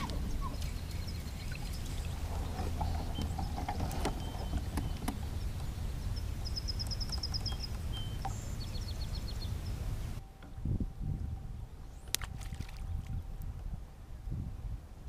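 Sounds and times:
small birds singing: 0.0s - 10.2s
steady low rumble: 0.0s - 15.0s.

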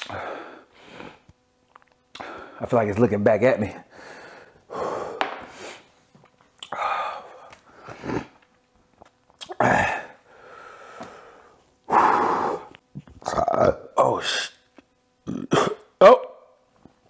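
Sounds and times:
man blowing and sucking air: 4.2s - 6.0s, 6.6s - 8.4s.

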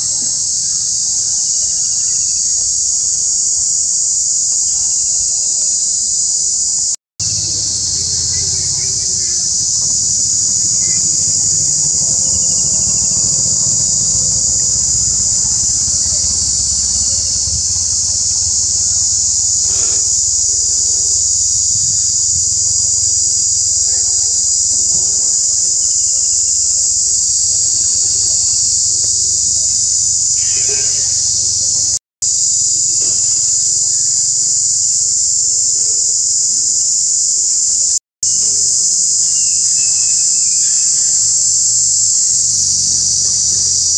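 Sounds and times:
insect chorus buzzing: 0.0s - 43.9s
low rumble: 7.2s - 22.7s.

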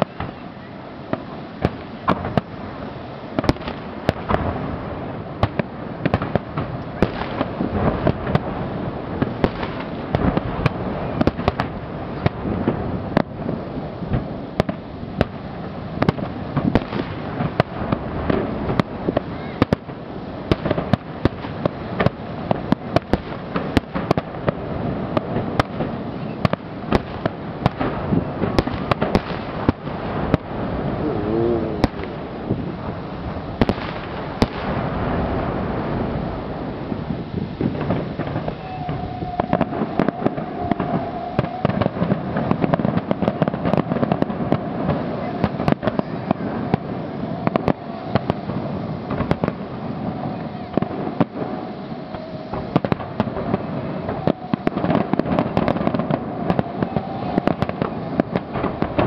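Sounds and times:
fireworks bursting with sharp bangs: 0.0s - 59.0s
fireworks rumble and crackle: 0.0s - 59.0s.

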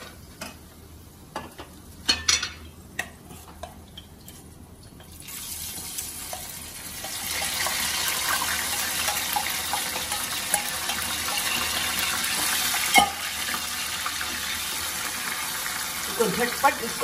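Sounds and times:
oil sizzling in pan: 5.0s - 17.0s.

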